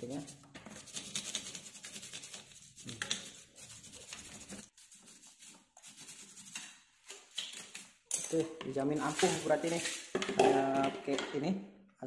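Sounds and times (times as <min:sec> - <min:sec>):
brush scrubbing bicycle chain: 0:00.0 - 0:06.8, 0:09.0 - 0:10.1.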